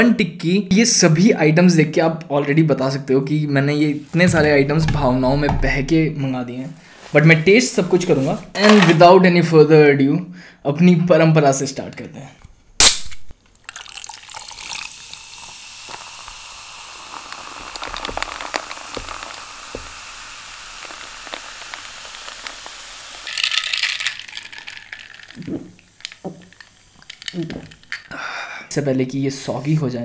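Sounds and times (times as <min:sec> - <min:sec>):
soda fizzing over ice: 0:13.5 - 0:28.2.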